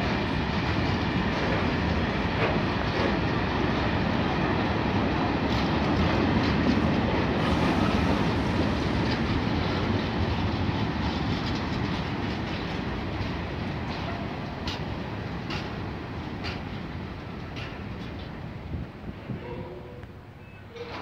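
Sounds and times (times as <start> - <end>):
train wheels rumbling on rails: 0.0 - 21.0
clicks over rail joints: 13.9 - 15.8, 17.4 - 18.4.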